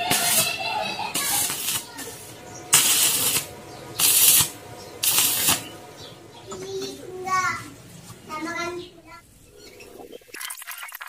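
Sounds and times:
arc welding crackle: 0.0 - 5.9.

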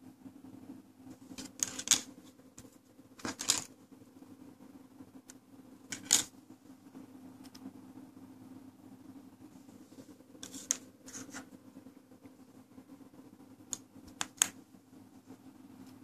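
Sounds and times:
steady low hum: 0.0 - 16.0
handling clicks and rustles: 1.1 - 3.8.

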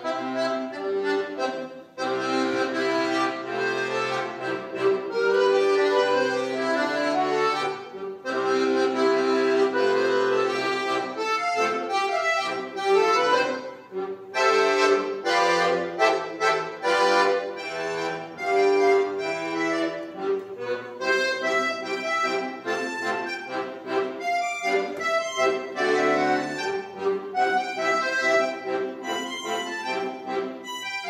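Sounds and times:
piano accordion playing: 0.0 - 31.0.

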